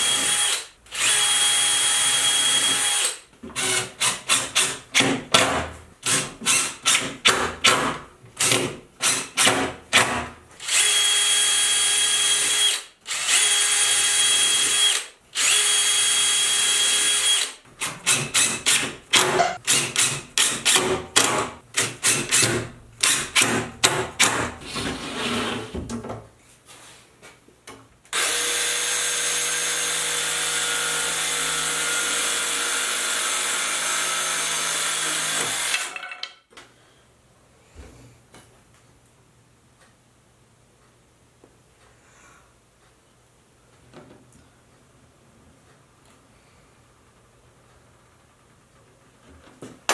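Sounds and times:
cordless drill driving screws: 0:00.0 - 0:04.8, 0:10.6 - 0:20.8, 0:28.2 - 0:36.0
power tool running steadily: 0:28.2 - 0:35.9.

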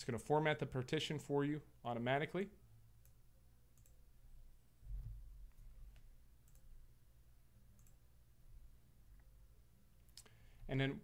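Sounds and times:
faint low hum: 0:00.0 - 0:11.0
soft low thump: 0:04.8 - 0:05.4
faint clicks: 0:07.8 - 0:08.0.

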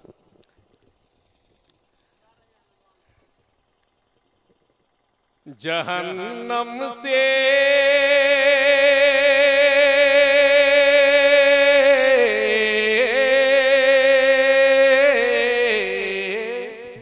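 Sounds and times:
man singing long wavering note: 0:05.5 - 0:17.0.

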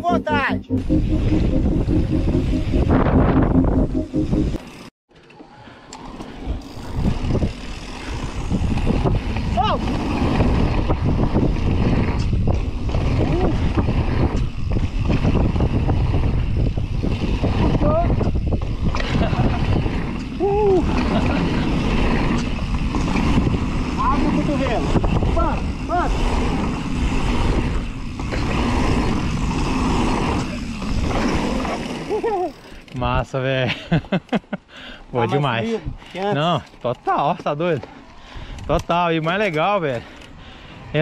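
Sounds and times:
bike clicks and rattles: 0:04.7 - 0:34.5, 0:35.8 - 0:41.0
wind buffeting microphone: 0:06.8 - 0:31.4
tyres rolling on packed dirt: 0:18.6 - 0:34.5.

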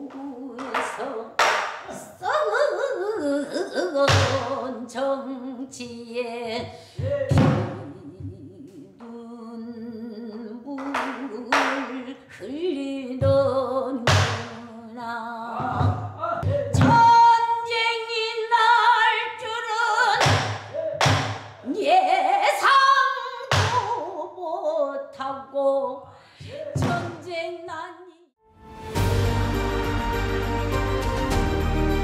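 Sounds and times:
woman singing long wavering notes: 0:00.0 - 0:01.4, 0:02.1 - 0:06.6, 0:07.2 - 0:20.2.

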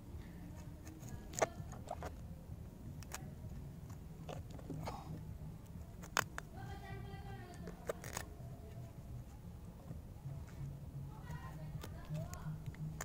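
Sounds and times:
cleaver cutting cauliflower: 0:07.7 - 0:08.3.

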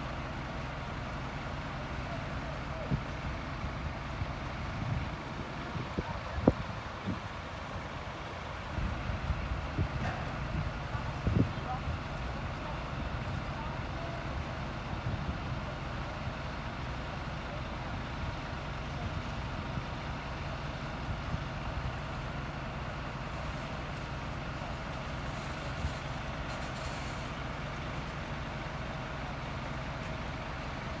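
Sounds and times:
diesel engines rumbling: 0:00.0 - 0:31.0.

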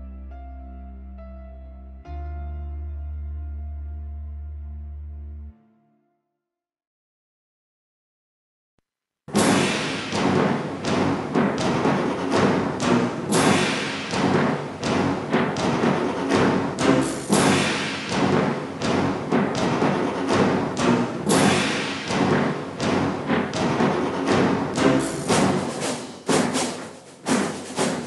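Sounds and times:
drum hits: 0:09.3 - 0:28.0
orchestral music: 0:09.4 - 0:28.0.

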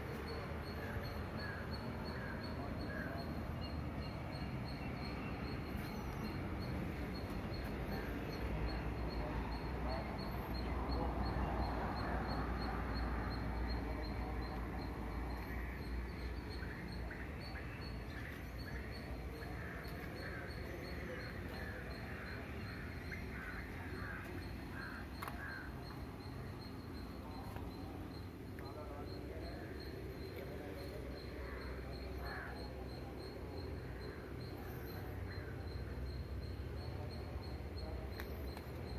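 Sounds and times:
birds calling: 0:15.2 - 0:32.6.

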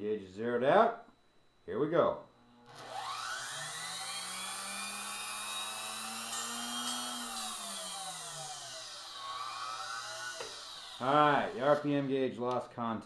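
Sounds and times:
vacuum cleaner motor whining: 0:02.4 - 0:12.1.

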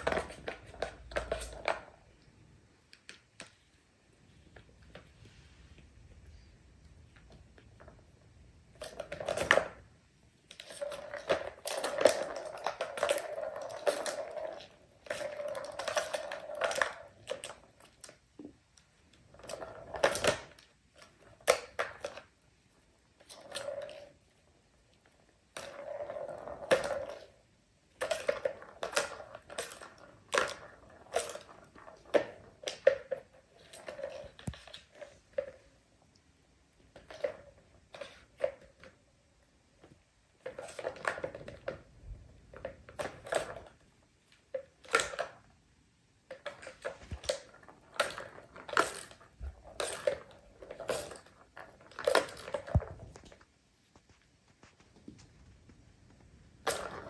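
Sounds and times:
plastic balls rolling in tracks: 0:00.0 - 0:02.4, 0:07.0 - 0:57.0
balls knocking on plastic: 0:46.2 - 0:57.0.

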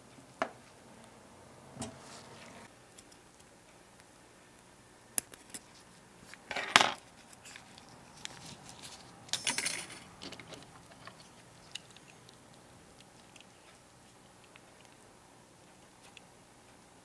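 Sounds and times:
small metal parts jingling: 0:09.3 - 0:11.2.

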